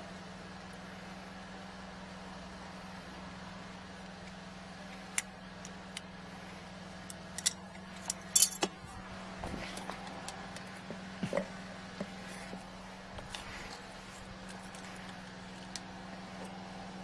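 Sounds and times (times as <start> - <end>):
steady engine hum: 0.0 - 17.0
sharp metal clicks: 7.0 - 8.7.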